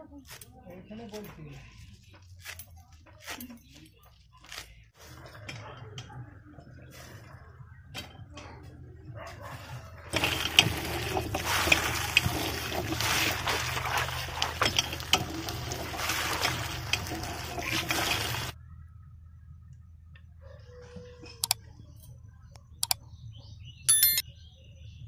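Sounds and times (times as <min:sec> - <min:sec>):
vegetables splashing in water: 0:10.1 - 0:18.6
water gushing from hand pump: 0:10.1 - 0:18.6.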